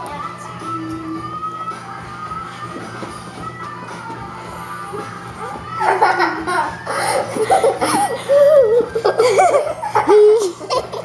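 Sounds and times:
girls laughing and squealing: 0:05.4 - 0:11.0.

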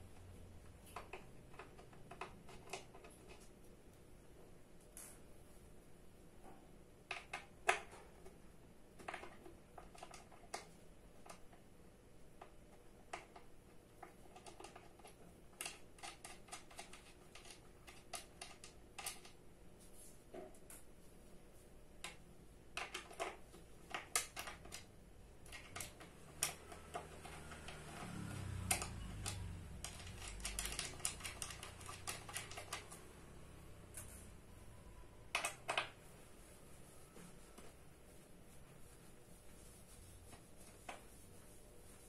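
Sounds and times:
screws and metal parts clicking: 0:22.8 - 0:33.2.

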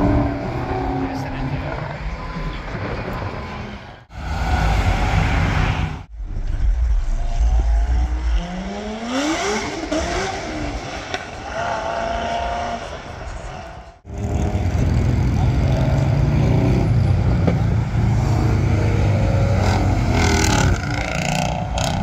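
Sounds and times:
supercar engines revving: 0:07.6 - 0:22.0.

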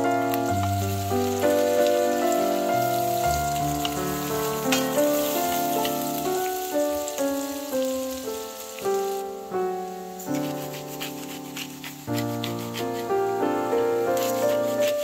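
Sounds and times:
onions sizzling in a pan: 0:00.0 - 0:15.0
slow background music: 0:00.0 - 0:15.0.

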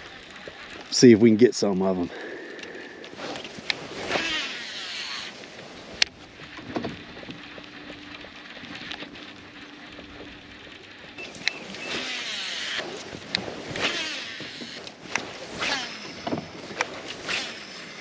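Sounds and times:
line whirring off spool: 0:00.0 - 0:18.0
fishing reel clicks: 0:02.2 - 0:05.4, 0:10.6 - 0:18.0.

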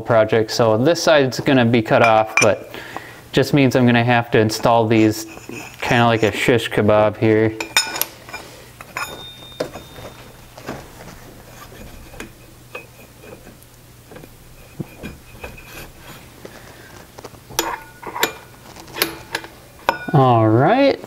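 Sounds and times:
steel parts clinking and scraping: 0:02.0 - 0:02.7, 0:04.3 - 0:06.7, 0:07.6 - 0:10.8, 0:17.0 - 0:20.4
faint metallic ring: 0:07.6 - 0:10.5, 0:19.8 - 0:20.4.

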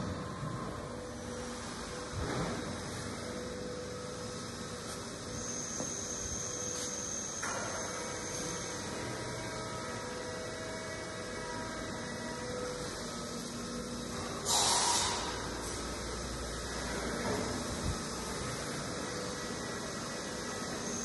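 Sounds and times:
electrical hum of machinery: 0:00.0 - 0:21.0
short burst of hiss: 0:14.5 - 0:15.3.

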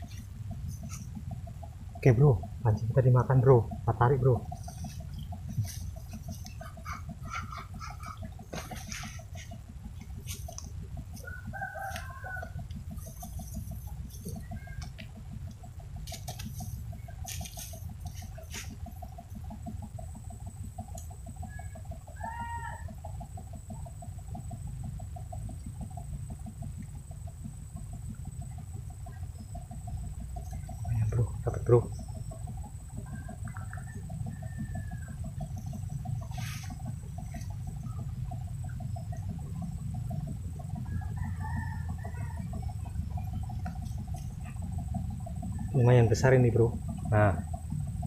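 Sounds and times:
low rumbling noise: 0:00.0 - 0:48.0
rapid pulsing sound: 0:00.0 - 0:48.0
animal call: 0:05.6 - 0:09.6
rooster crowing: 0:11.1 - 0:13.6, 0:21.5 - 0:23.2, 0:33.0 - 0:36.9, 0:40.2 - 0:44.2.

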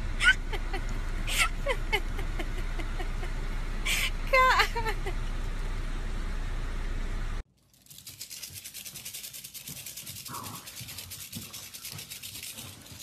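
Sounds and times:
dog claws scratching on wooden floor: 0:07.8 - 0:13.0.

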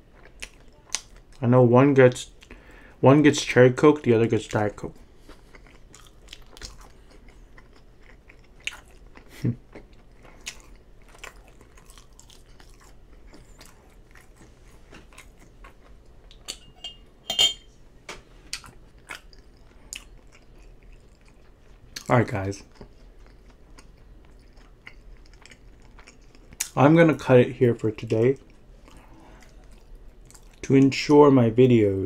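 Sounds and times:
person chewing fries: 0:00.0 - 0:01.4, 0:04.4 - 0:16.5, 0:18.5 - 0:26.8, 0:28.0 - 0:30.7.

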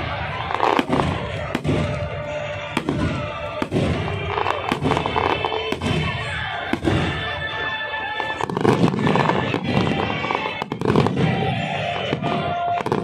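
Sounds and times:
fireworks crackle and rumble: 0:00.0 - 0:13.0
music playing: 0:00.0 - 0:13.0
firework shells bursting: 0:00.6 - 0:07.4.

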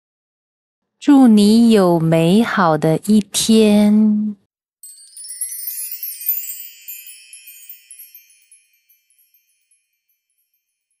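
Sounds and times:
wind chimes tinkling: 0:04.8 - 0:11.0.

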